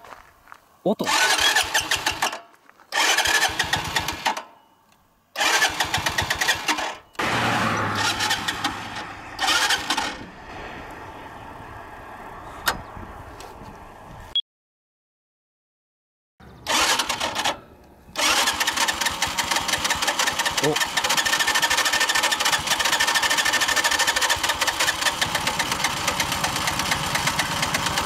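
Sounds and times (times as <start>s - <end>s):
motorcycle starter cranking: 1.1s - 4.4s, 5.4s - 7.0s, 8.0s - 10.2s, 16.6s - 28.0s
motorcycle engine revving and idling: 5.4s - 13.8s, 18.1s - 28.0s.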